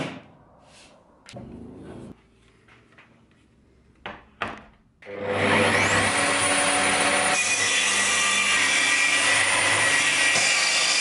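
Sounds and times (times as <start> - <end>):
circular saw whining and cutting: 5.0 - 11.0.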